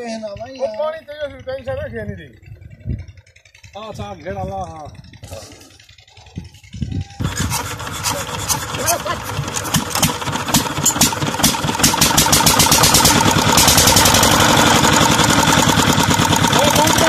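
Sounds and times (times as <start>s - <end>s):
diesel engine firing beats: 0.2s - 17.0s.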